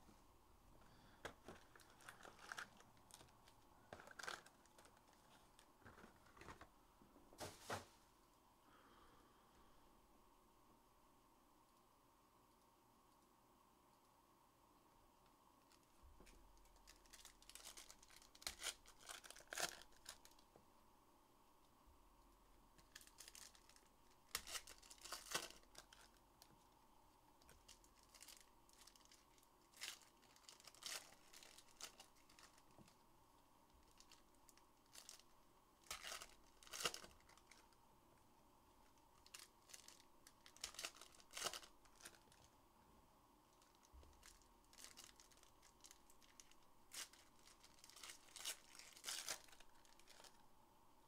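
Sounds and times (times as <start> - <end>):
packaging rustling and crackling: 1.0 - 6.7, 15.6 - 20.4, 22.8 - 26.5, 27.4 - 33.0, 33.8 - 37.7, 38.8 - 42.5, 43.5 - 50.4.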